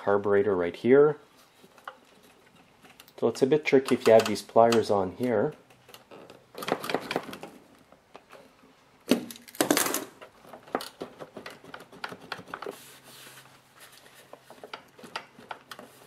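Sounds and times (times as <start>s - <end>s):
pliers and clamp clicking: 3.8s - 4.9s.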